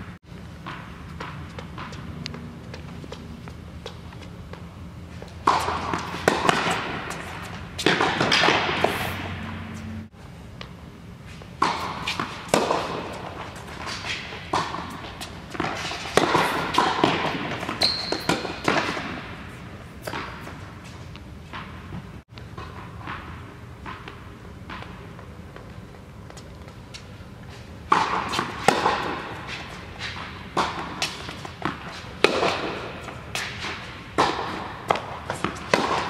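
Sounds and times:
tennis balls hit with racquets: 0.6 - 25.7, 26.3 - 36.0
tennis balls bouncing: 0.6 - 36.0.

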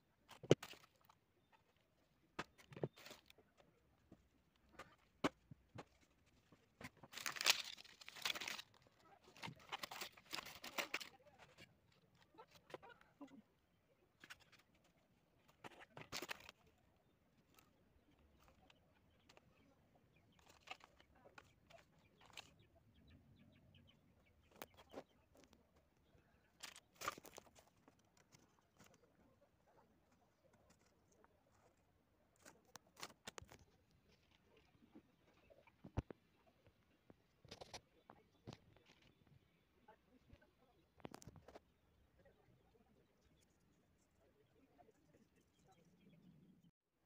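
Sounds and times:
paper crinkling: 4.6 - 13.0, 14.2 - 16.7, 20.4 - 22.6, 26.6 - 29.3
plastic packaging crinkling: 6.9 - 11.1.

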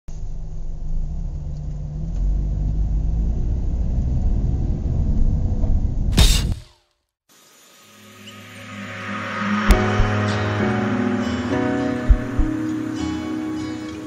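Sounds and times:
car engine low rumble: 0.1 - 6.2
sudden loud crash: 5.6 - 6.8.

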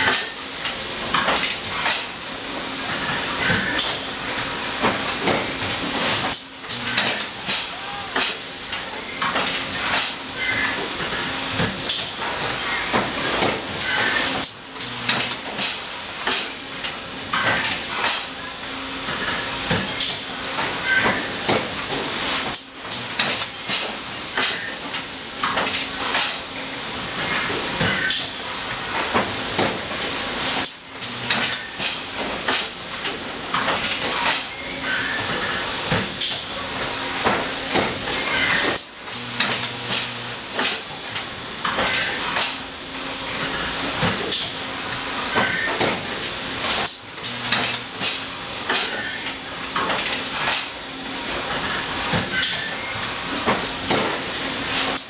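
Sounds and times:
machine metallic clanks and clicks: 0.0 - 2.2, 3.4 - 10.2, 11.6 - 18.3, 19.7 - 26.5, 27.8 - 34.6, 35.9 - 42.6, 43.8 - 51.4.

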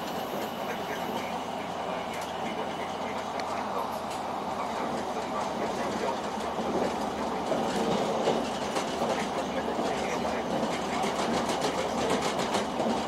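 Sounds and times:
train wheels rumbling on rails: 0.0 - 13.0
wheels clicking over rail joints: 3.1 - 13.0.

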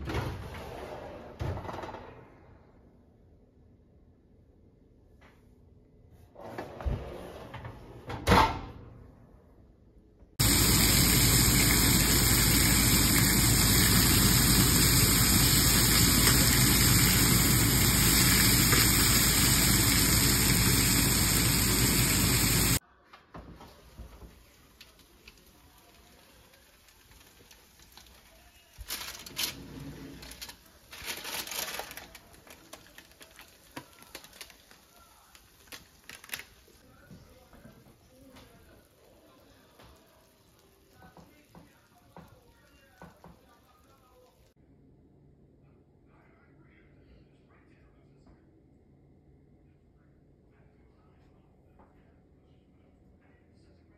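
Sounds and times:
chicken sizzling in a frying pan: 10.4 - 22.8, 23.9 - 29.3, 30.2 - 36.9, 38.4 - 44.5.

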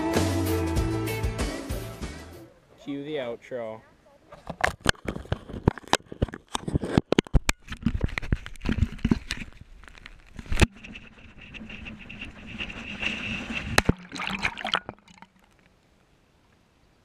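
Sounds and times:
water sloshing and trickling: 8.6 - 16.6.

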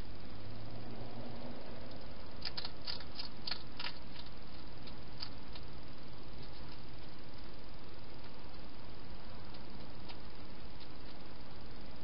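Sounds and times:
steady hiss: 0.0 - 12.0
hedgehog chewing clicks: 1.9 - 5.7.

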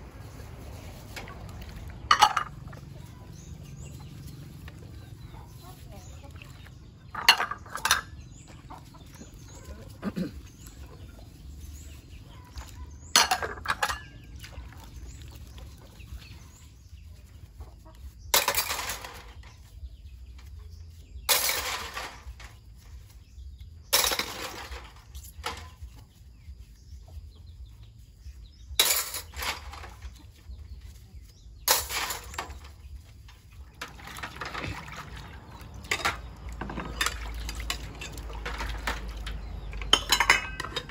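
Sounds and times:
chickens clucking: 0.1 - 18.3, 32.3 - 40.9.

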